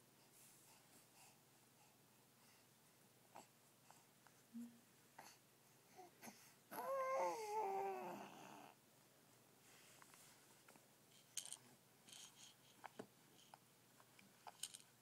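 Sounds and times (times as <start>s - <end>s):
baby's drawn-out vocal call: 6.7s - 8.7s.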